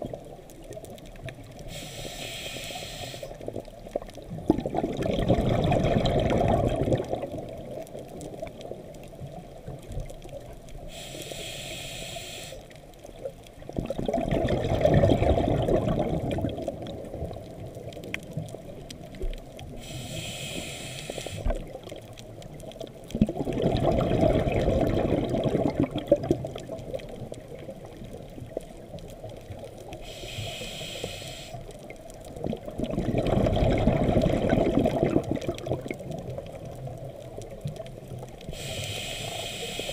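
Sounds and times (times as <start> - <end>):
regulator inhale hiss: 1.6 - 3.5, 10.8 - 12.8, 19.7 - 21.6, 29.9 - 31.8, 38.5 - 39.9
exhaled bubbles rushing: 3.4 - 8.4, 13.7 - 17.9, 23.1 - 28.5, 32.4 - 38.4.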